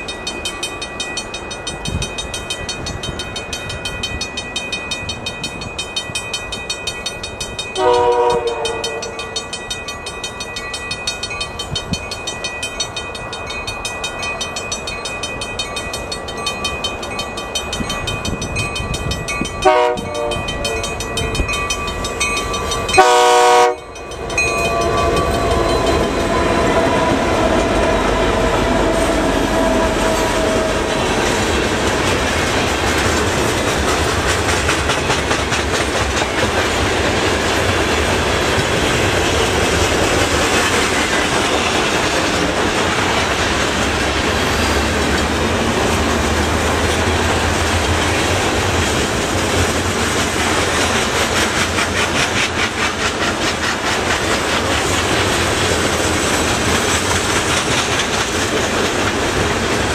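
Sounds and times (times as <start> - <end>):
diesel locomotives passing: 0.0 - 59.9
train wheels rumbling and clacking: 0.0 - 59.9
train horn blast: 7.8 - 9.3, 19.6 - 20.8, 23.0 - 23.9, 26.0 - 31.0.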